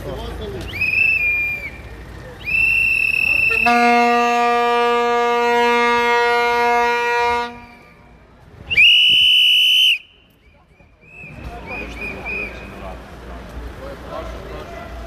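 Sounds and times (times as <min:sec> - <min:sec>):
crowd noise: 0:00.0 - 0:15.0
shrill whistle: 0:00.6 - 0:03.8, 0:07.6 - 0:08.1, 0:08.7 - 0:12.8.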